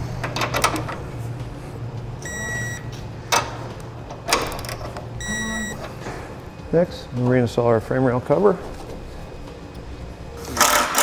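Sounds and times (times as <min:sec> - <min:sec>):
low steady hum: 0:00.0 - 0:10.6
short electronic beep: 0:05.2 - 0:05.8.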